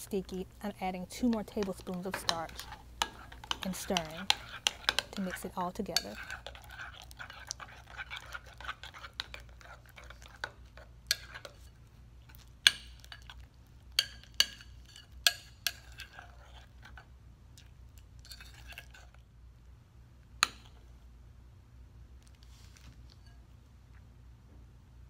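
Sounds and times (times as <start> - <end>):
spoon stirring sticky slime: 0.0 - 19.2
spoon clinking against bowl: 1.3 - 10.5.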